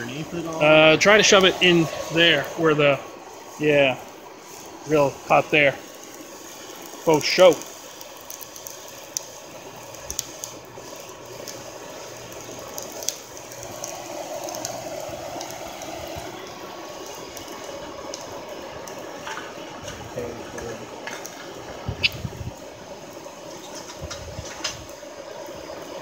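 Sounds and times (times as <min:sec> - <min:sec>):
hair dryer blowing air: 0:00.2 - 0:04.0.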